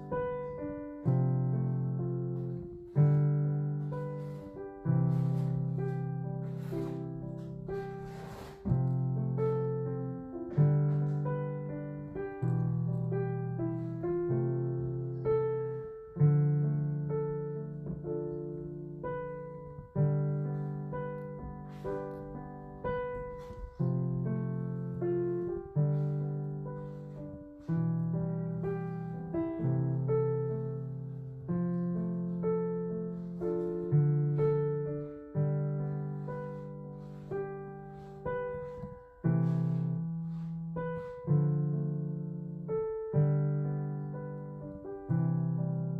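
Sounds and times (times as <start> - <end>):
slow piano music: 0.0 - 45.9.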